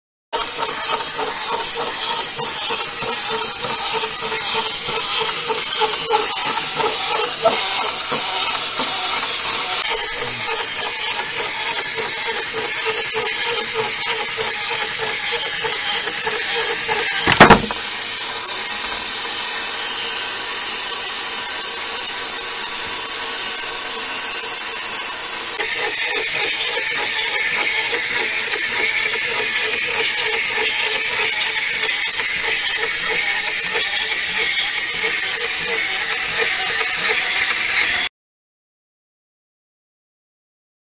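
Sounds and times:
toy motor and gears whirring: 0.4 - 38.1
toy tipping over onto table: 17.2 - 17.8.

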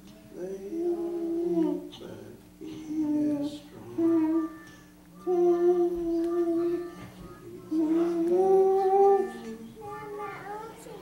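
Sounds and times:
toddler girl singing: 3.0 - 11.0.

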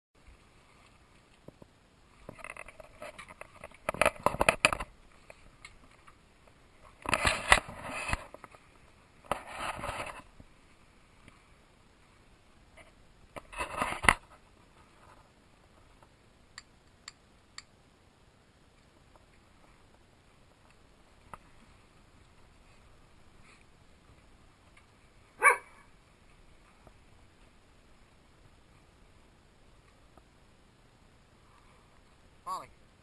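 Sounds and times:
scraping and rustling with clicks: 0.3 - 10.4, 12.8 - 16.2.

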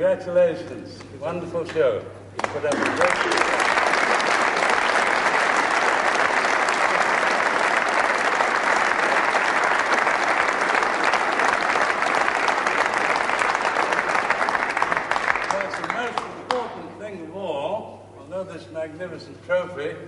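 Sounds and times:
audience applauding: 2.4 - 16.8.

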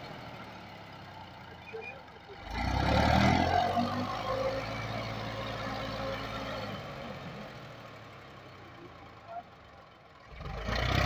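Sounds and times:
tractor diesel engine revving hard: 2.4 - 7.8, 10.2 - 11.0.

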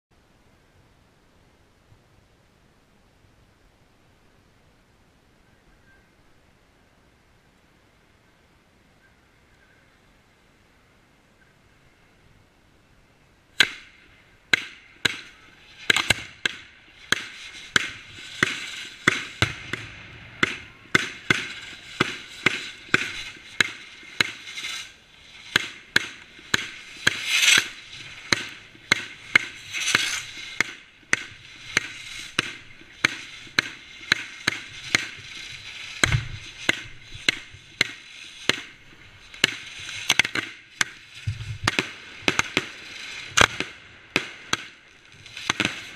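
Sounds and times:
fireworks hissing and crackling: 13.5 - 45.9
fireworks banging: 13.6 - 45.9.

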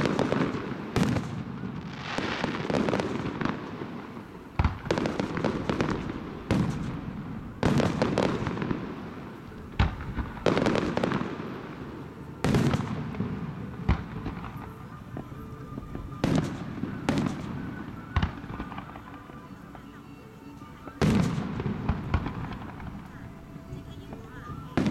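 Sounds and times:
fireworks booming with echo: 0.0 - 24.9.

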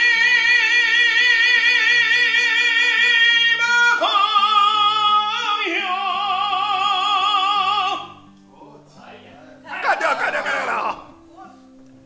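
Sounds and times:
man singing with vibrato: 0.0 - 8.3, 9.7 - 11.2
backing music: 3.3 - 12.0.

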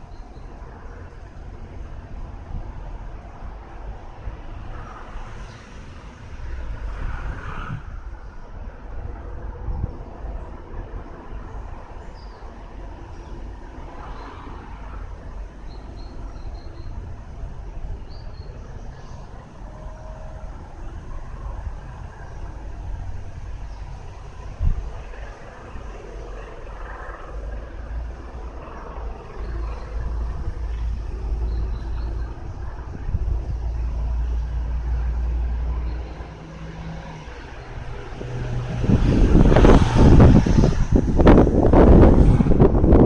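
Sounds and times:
low outdoor rumble: 0.0 - 43.0
wind buffeting microphone: 0.0 - 43.0
vehicle engine passing by: 3.4 - 8.5, 18.0 - 43.0.

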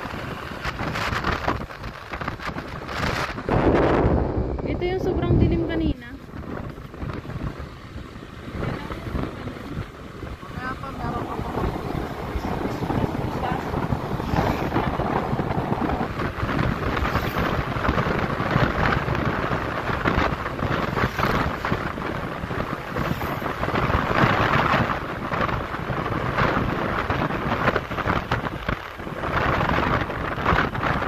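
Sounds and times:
road noise: 0.0 - 31.0
wind buffeting microphone: 0.0 - 31.0.

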